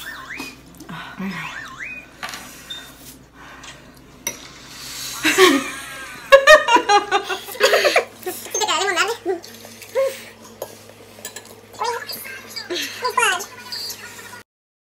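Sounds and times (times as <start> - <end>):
women laughing: 5.2 - 8.6.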